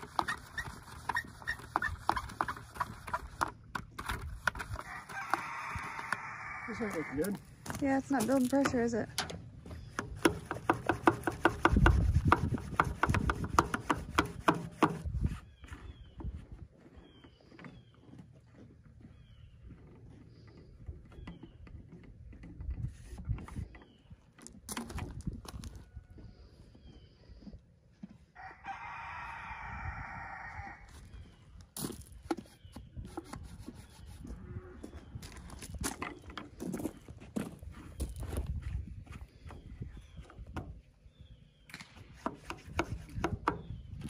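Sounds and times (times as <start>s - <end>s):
rooster crowing: 4.8s - 7.2s, 28.4s - 30.9s
sharp knocks and clicks: 8.6s - 15.2s.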